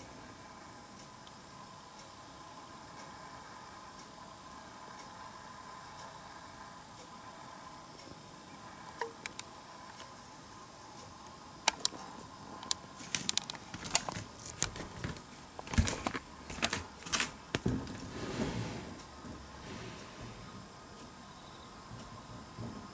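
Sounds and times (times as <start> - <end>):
hands handling camera clicks: 12.6 - 17.3
wooden sliding door opening: 14.9 - 20.7.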